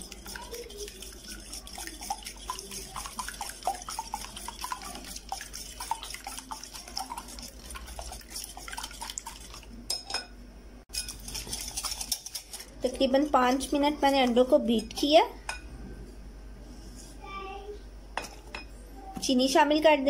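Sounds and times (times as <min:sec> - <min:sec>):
eggs sloshing: 0:00.0 - 0:09.8, 0:10.9 - 0:15.1
whisk clicking against glass bowl: 0:00.0 - 0:10.0, 0:10.9 - 0:12.7.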